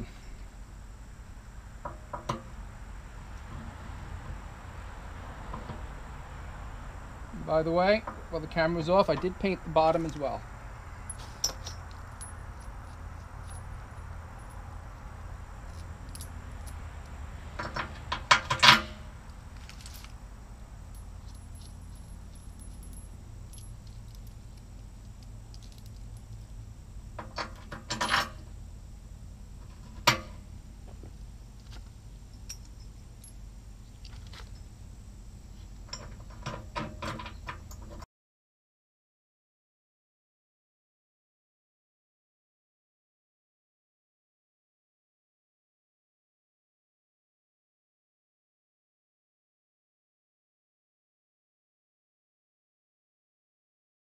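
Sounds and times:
metal bolts and nuts clinking: 0:11.1 - 0:14.7, 0:17.6 - 0:19.0, 0:20.9 - 0:26.5, 0:27.2 - 0:28.5, 0:31.6 - 0:34.7, 0:35.8 - 0:38.0.

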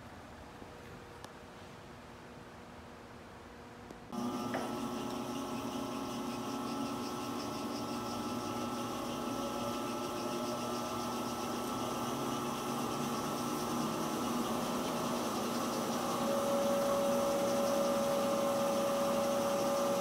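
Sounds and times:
electric motor hum and whine: 0:04.1 - 0:20.0.

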